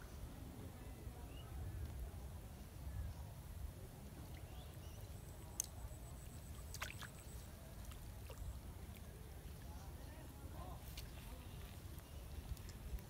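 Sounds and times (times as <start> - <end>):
light ticks: 5.5 - 5.8.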